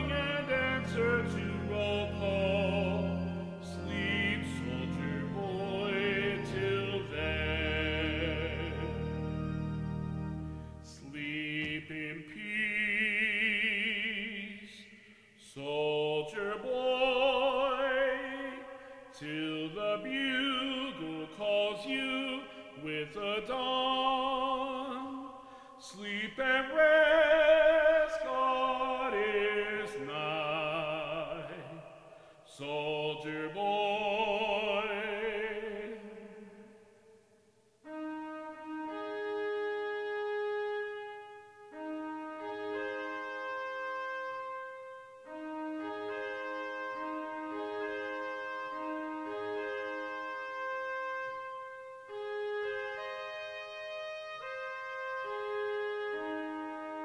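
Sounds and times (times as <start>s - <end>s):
instrumental accompaniment: 0.0s - 12.5s, 37.8s - 57.0s.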